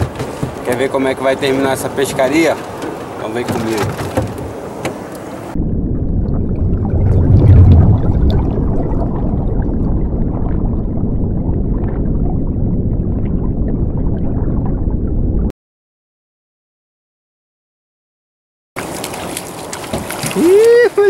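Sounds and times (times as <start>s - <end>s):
deep underwater rumble: 5.4s - 15.5s
faint bubbling: 5.6s - 15.5s.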